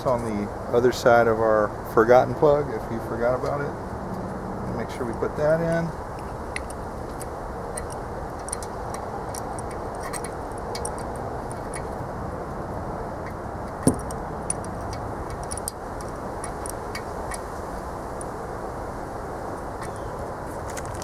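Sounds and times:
steady background noise: 0.0 - 21.0
metallic clicks of hand tools: 5.1 - 12.0, 13.8 - 17.5.

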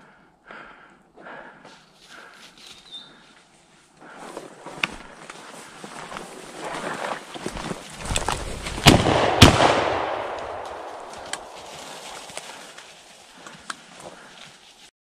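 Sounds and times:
shotgun shots with echo: 8.8 - 11.2.

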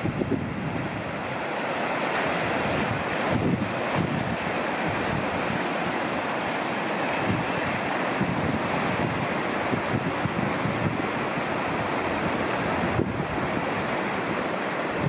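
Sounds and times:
river rushing over rocks: 0.0 - 15.0.

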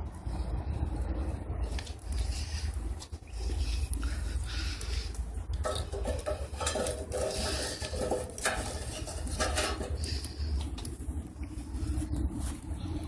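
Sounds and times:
steady low rumble: 0.0 - 13.0
wooden sticks clanking on steel: 5.6 - 10.8.

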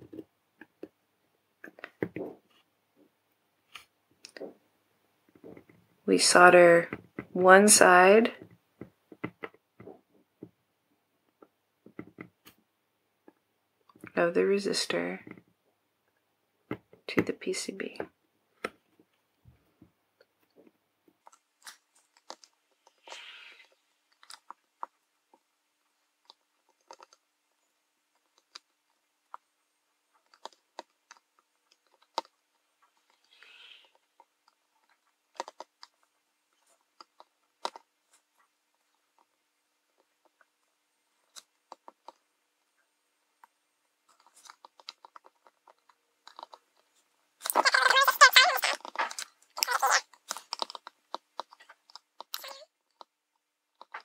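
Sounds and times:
soft hisses: 23.0 - 23.9.

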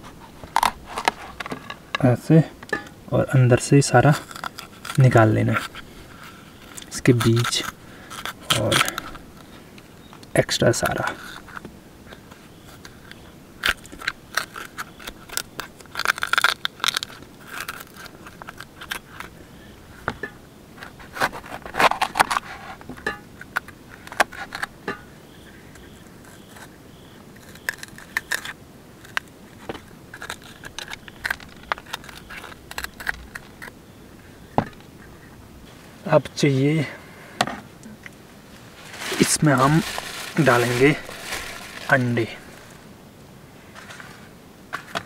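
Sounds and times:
knife scraping peppers: 4.0 - 10.1, 10.7 - 33.8.

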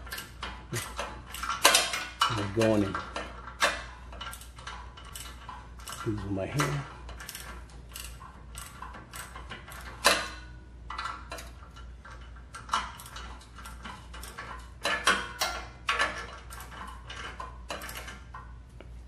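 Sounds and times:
metallic clacks: 0.0 - 18.6
ratchet wrench clicking: 3.2 - 6.1, 6.7 - 11.8.

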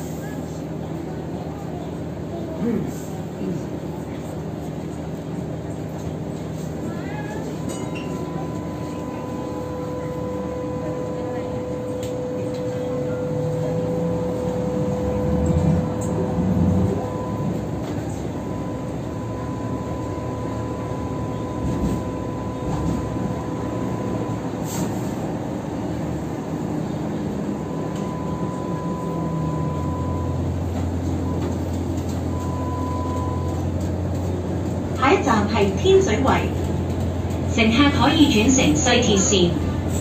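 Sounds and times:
light rail running rumble: 0.0 - 40.0
deeper hum: 7.8 - 33.6.

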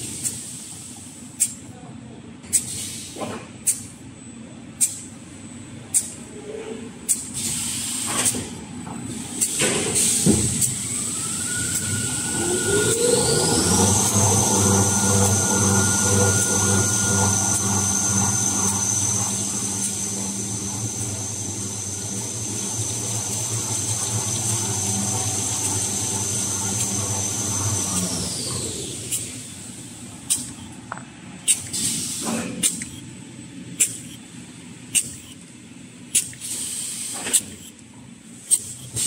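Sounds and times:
production machinery whining: 9.7 - 36.1
low hum: 11.0 - 30.7.

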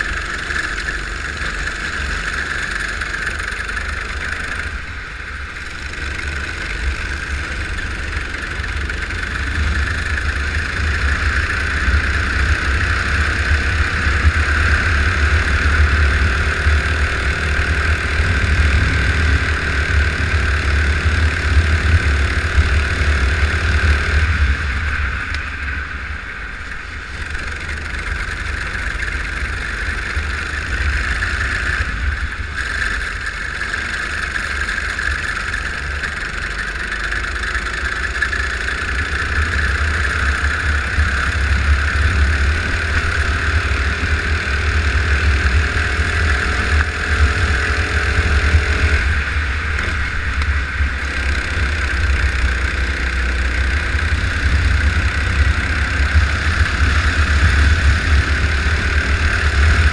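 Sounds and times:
go-kart engine racing: 0.0 - 59.9
wind: 0.0 - 59.9.

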